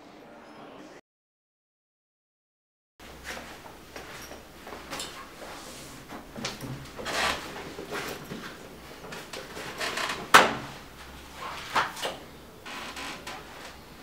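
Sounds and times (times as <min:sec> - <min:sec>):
chair being pulled out: 0:04.8 - 0:14.0.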